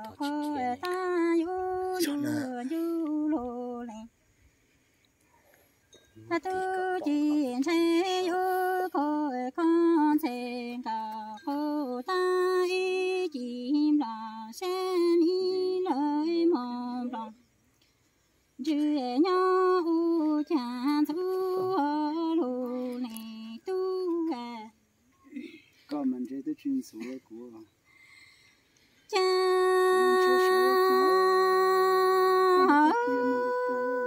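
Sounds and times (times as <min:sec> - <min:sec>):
woman singing unaccompanied: 0:00.0 - 0:04.2, 0:06.3 - 0:17.5, 0:18.6 - 0:25.0, 0:29.1 - 0:34.0.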